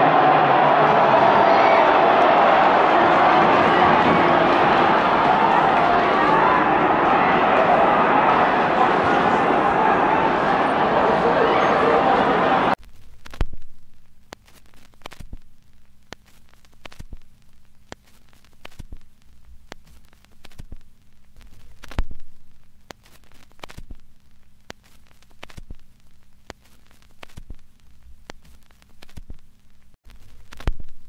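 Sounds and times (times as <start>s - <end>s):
soft clicks and crackles: 12.8s - 31.0s.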